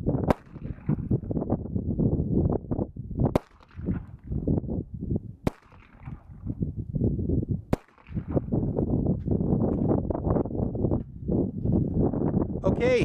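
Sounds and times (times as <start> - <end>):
wind buffeting microphone: 0.0 - 13.0
pistol shots: 0.3 - 1.1, 3.3 - 4.2, 5.4 - 6.4, 7.7 - 8.5.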